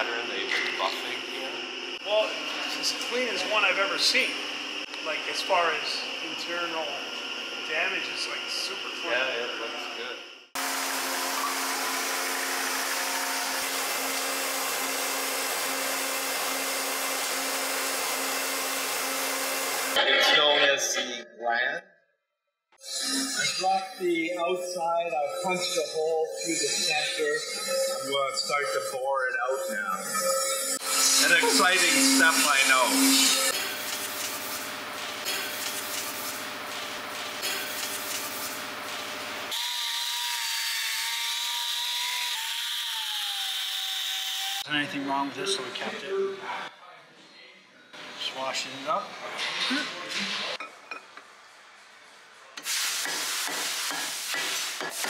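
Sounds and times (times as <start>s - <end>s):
die grinder whining: 2.4s - 20.0s, 29.7s - 44.6s
metal lathe cutting: 10.6s - 20.0s, 26.4s - 44.6s
rough rubbing tool noise: 29.6s - 36.5s.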